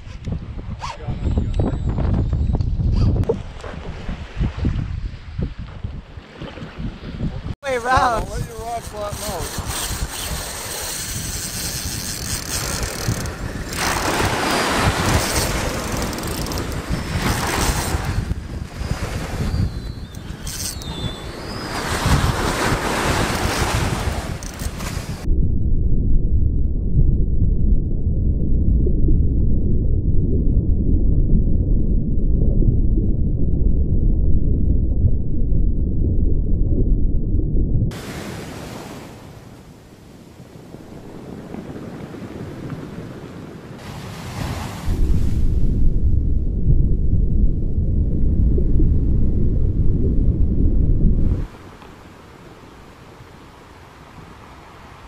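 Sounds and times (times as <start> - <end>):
wind buffeting microphone: 0.0 - 55.0
surf on a beach: 6.3 - 11.3, 13.3 - 25.3, 37.9 - 46.4, 51.1 - 55.0
water splashing: 7.7 - 25.3
wind hiss: 7.7 - 25.3
muffled underwater rumble: 25.3 - 37.9, 44.9 - 51.5.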